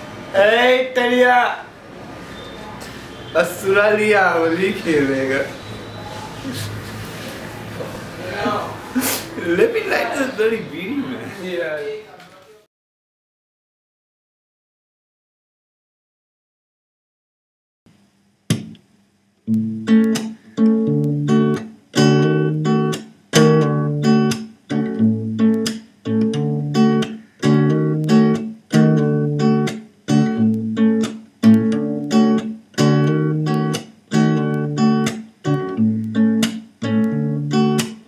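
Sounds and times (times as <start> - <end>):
acoustic guitar strumming: 19.4 - 38.0.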